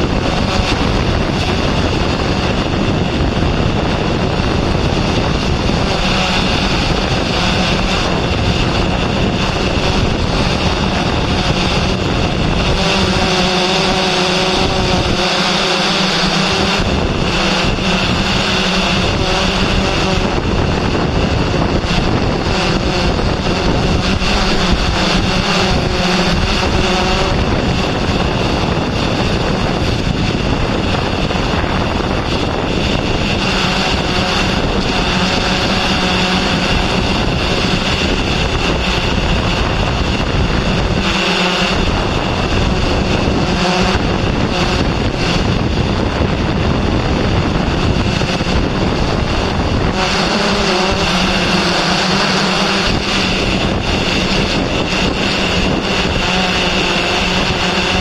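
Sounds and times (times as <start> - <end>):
small motor whining: 0.0 - 58.0
wind on microphone: 0.0 - 58.0.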